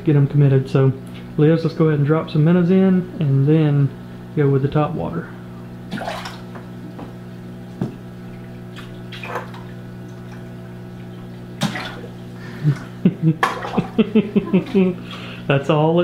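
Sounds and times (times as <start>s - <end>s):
steady low hum: 0.0s - 16.0s
water splashing in aquarium: 5.8s - 15.4s.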